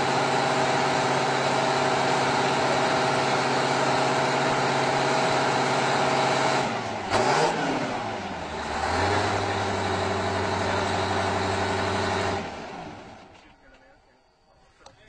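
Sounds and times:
tractor diesel engine revving: 0.0s - 13.5s.

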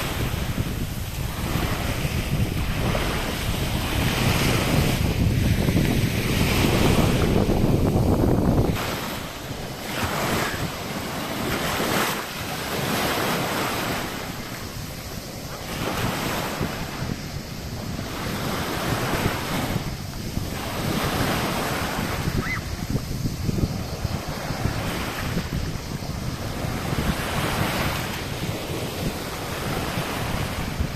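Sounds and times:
sea waves lapping and breaking: 0.0s - 30.9s
wind buffeting microphone: 0.0s - 30.9s.

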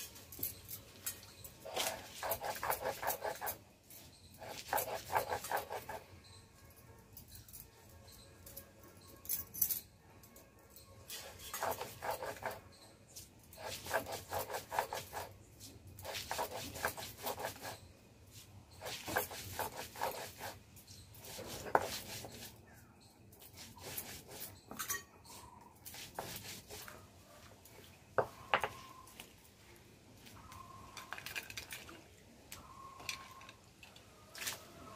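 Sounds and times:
stone grinding on stone: 1.3s - 6.4s, 11.0s - 17.9s, 18.7s - 27.0s.

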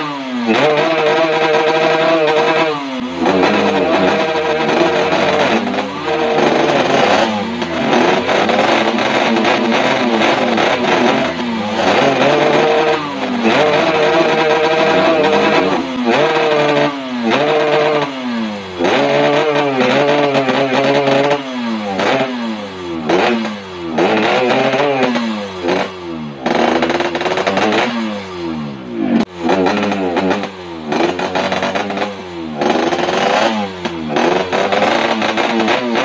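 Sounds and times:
two-stroke motorcycle engine revving: 0.0s - 36.0s.

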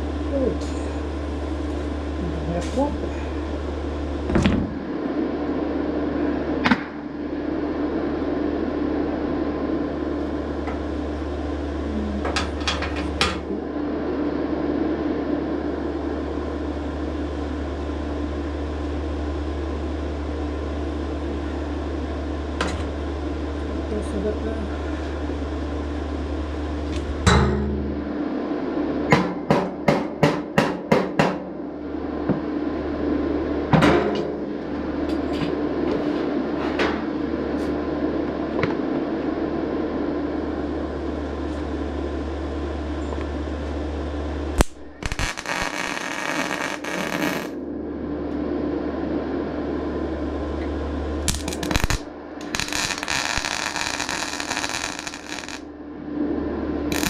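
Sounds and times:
arc welding crackling and hissing: 0.0s - 5.0s, 41.1s - 47.6s, 51.2s - 55.7s
steady low hum: 0.0s - 57.0s.

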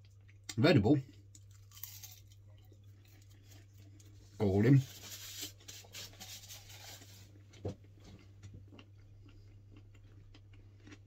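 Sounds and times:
faint chewing: 0.0s - 4.4s, 6.9s - 11.0s
low steady hum: 0.0s - 11.0s.

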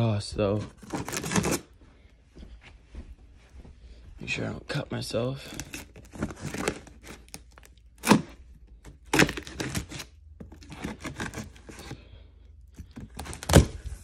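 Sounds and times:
tape tearing and scraping: 0.8s - 1.7s, 5.5s - 12.0s, 12.8s - 14.0s
knife slicing packing tape: 9.1s - 11.6s.

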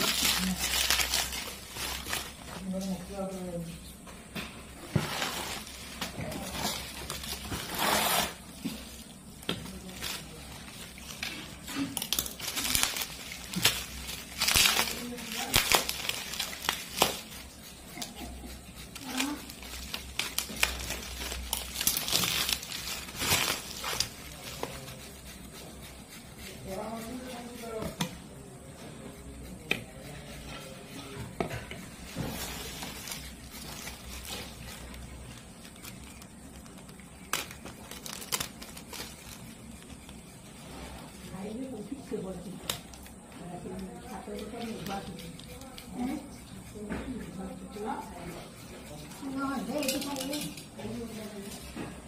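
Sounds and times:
bubble wrap crinkling: 0.0s - 3.5s, 4.8s - 28.7s, 31.8s - 46.8s
person speaking: 22.7s - 31.4s.

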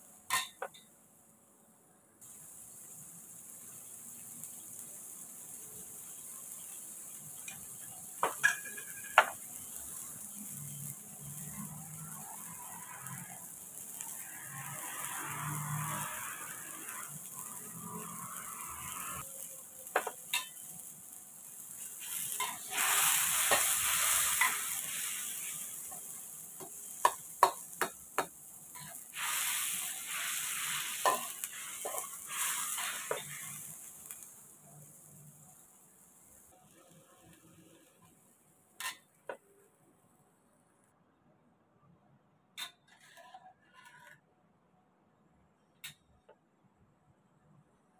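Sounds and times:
garlic and onion sizzling in oil: 0.0s - 1.5s, 2.2s - 39.9s
metal spatula scraping a wok: 7.4s - 19.3s, 21.8s - 34.2s, 38.8s - 39.2s, 42.6s - 44.2s.

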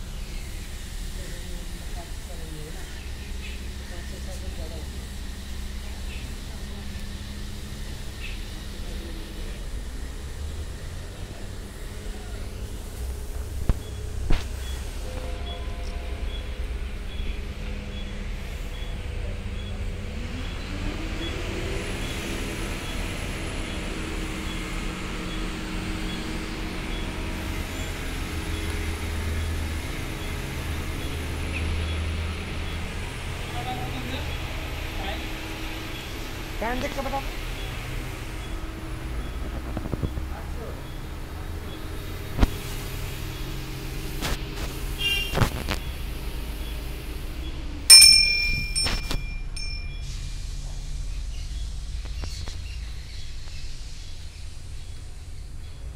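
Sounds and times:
low mechanical drone: 0.0s - 55.9s
faint high chirp: 47.9s - 50.2s
small metal bell ringing: 47.9s - 50.2s.

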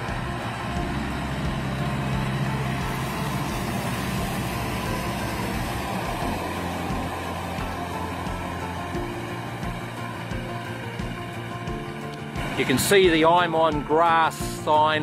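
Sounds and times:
harvester and wagon rolling past: 0.0s - 15.0s
tractor engine: 0.0s - 15.0s.

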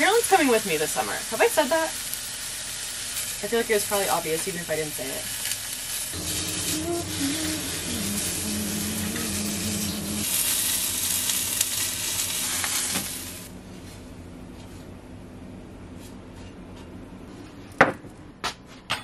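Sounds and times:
eggs sizzling in a frying pan: 0.0s - 13.5s.

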